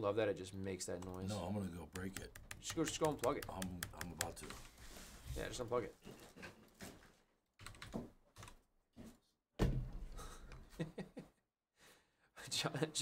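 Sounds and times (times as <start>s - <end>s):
computer keyboard typing: 0.9s - 4.6s, 7.6s - 8.6s.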